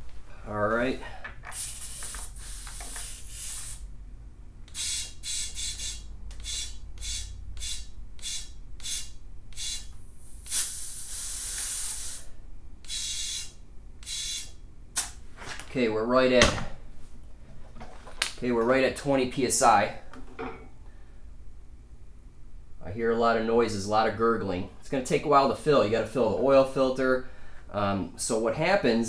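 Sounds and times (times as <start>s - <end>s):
compressed air hissing: 1.0s - 3.9s, 4.7s - 15.2s.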